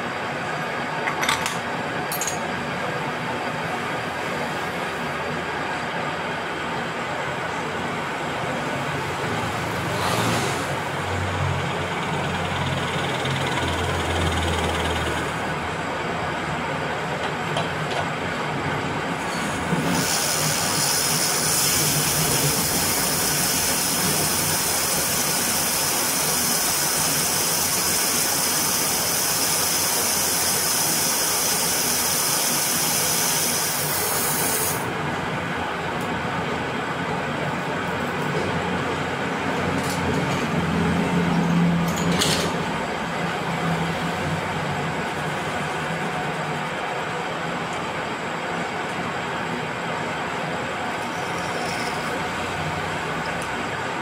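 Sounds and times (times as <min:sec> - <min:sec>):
metal lathe running: 0:11.6 - 0:15.9, 0:50.0 - 0:54.0
high hiss of tool cutting steel: 0:19.3 - 0:34.8.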